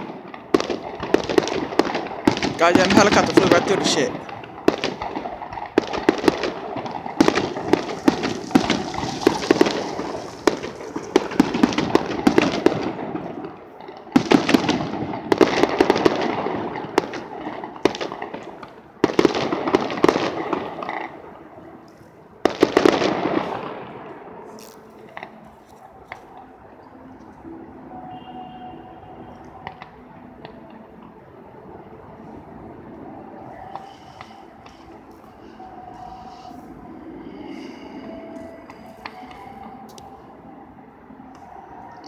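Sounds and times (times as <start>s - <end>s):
fireworks bangs and crackle: 0.0s - 21.5s, 22.4s - 26.4s.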